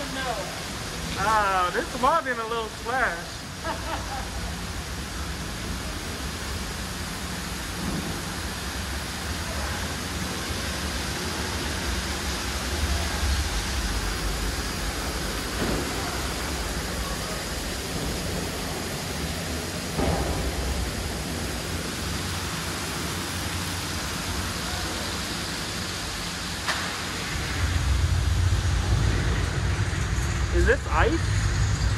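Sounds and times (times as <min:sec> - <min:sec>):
water rushing and splashing: 0:00.0 - 0:31.9
low rumble: 0:25.9 - 0:31.9.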